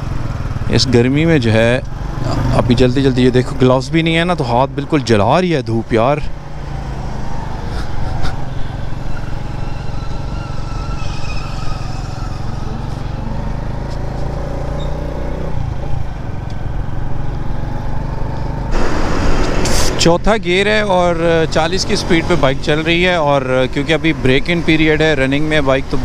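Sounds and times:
motorcycle engine running: 0.0 - 4.8, 6.3 - 18.8.

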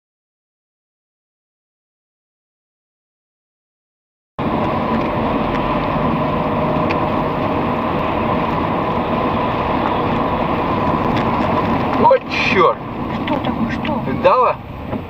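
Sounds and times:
tyres on wet road: 4.4 - 15.0
vehicle engine and road noise: 4.4 - 15.0.

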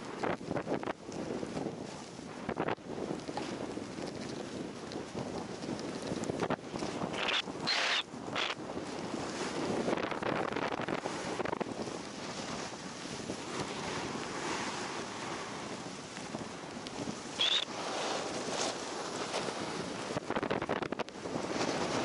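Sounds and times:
wind buffeting microphone: 0.0 - 22.0
snowboard hissing through snow: 7.2 - 8.6.

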